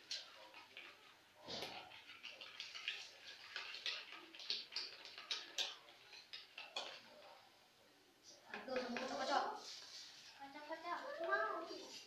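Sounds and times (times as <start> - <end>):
spoon scraping a mixing bowl: 0.1 - 7.4.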